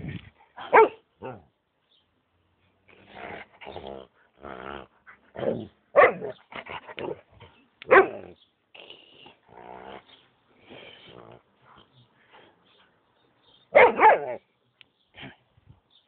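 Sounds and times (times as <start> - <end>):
dog barking sharply: 0.6 - 1.0, 6.0 - 6.3, 7.9 - 8.2, 13.7 - 14.4
dog growling and grumbling: 2.9 - 5.7, 9.5 - 10.2.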